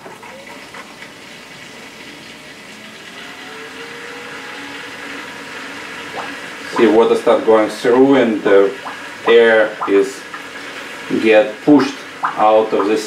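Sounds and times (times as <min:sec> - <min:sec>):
water pump rushing and whining: 0:00.0 - 0:13.0.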